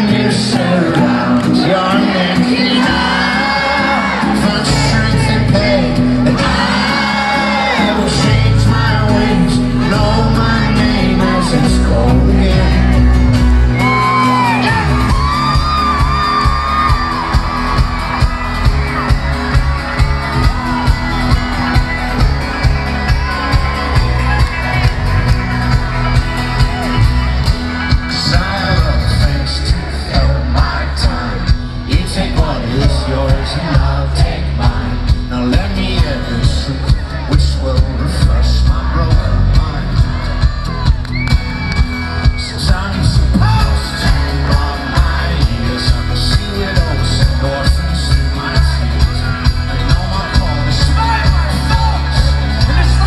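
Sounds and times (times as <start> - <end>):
audience shouting and whooping: 0.0 - 9.2, 11.0 - 34.9, 39.8 - 45.8
person singing: 0.0 - 41.1, 42.3 - 53.0
folk-rock band playing live: 0.0 - 53.0
banjo: 42.9 - 53.0.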